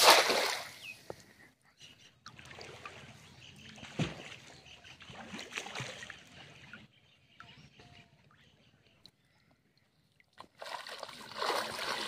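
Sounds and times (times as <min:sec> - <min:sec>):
water splashing from fishing net: 0:00.0 - 0:00.7, 0:10.5 - 0:12.0.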